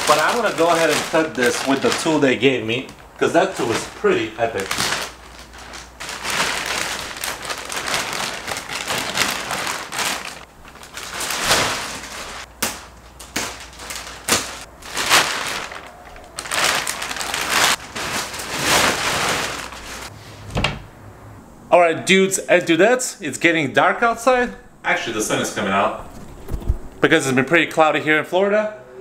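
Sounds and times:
plastic wrap crinkling: 0.0 - 20.1.

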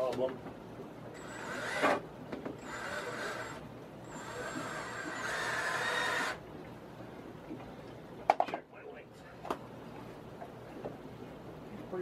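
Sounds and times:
cordless drill driving screws: 1.2 - 2.0, 2.6 - 6.4.

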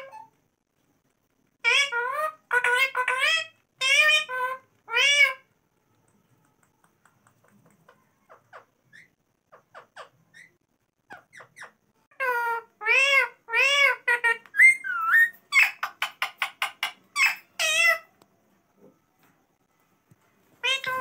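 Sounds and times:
parrot calling: 1.6 - 5.5, 7.4 - 18.1, 20.6 - 21.0
parrot clicks and chirps: 6.0 - 9.1, 14.4 - 17.9
parrot whistled call: 14.5 - 15.9.

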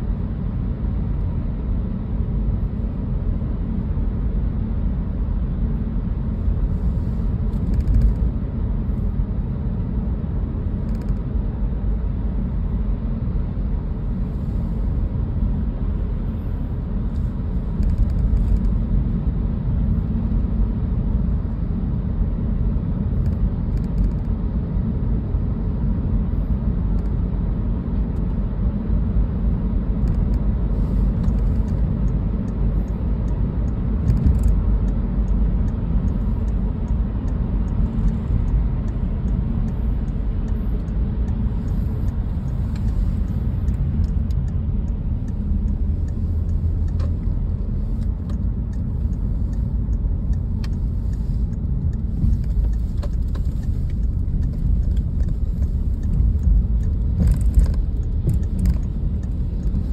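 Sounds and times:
car driving on wet road: 0.0 - 59.9
faint ticks: 31.1 - 59.9.

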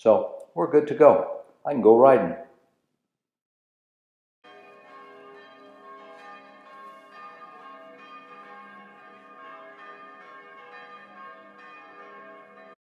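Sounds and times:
bells ringing in a peal: 4.4 - 12.8.

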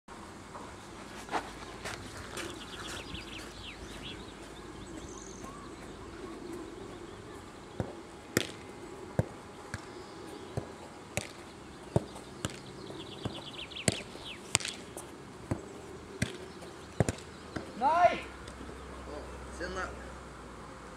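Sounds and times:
bird trilling: 2.2 - 20.0
ball kicked thuds: 7.7 - 9.9, 10.5 - 14.8, 15.5 - 17.8.

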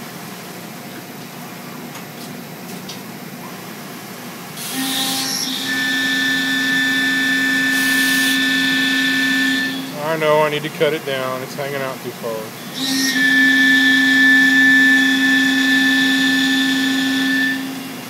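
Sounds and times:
milling machine cutting steel: 4.6 - 10.0, 12.6 - 18.0.

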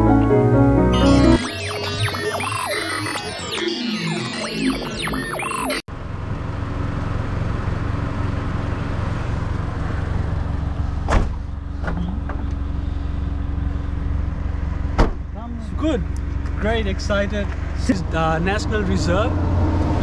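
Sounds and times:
car engine idling: 5.9 - 18.9.

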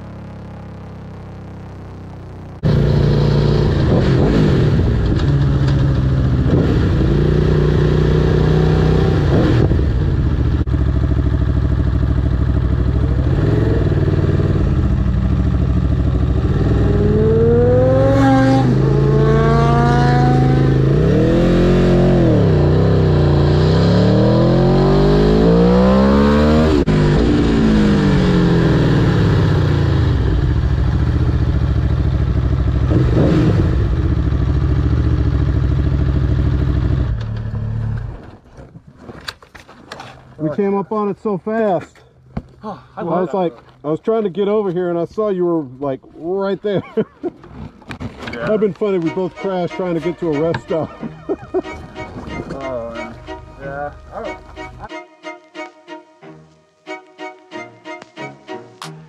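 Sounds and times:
motorcycle engine revving: 0.0 - 38.3.

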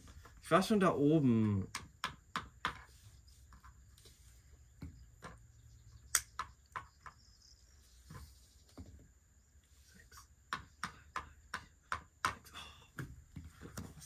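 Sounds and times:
light sharp taps and clicks: 6.0 - 7.2.

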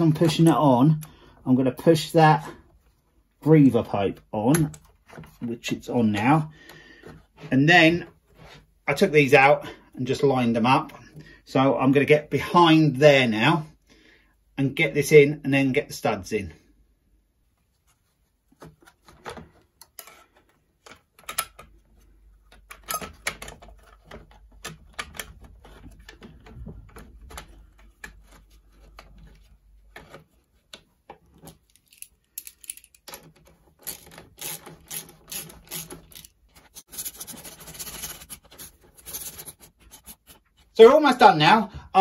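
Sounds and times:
plastic and metal parts rattling: 18.6 - 40.6.

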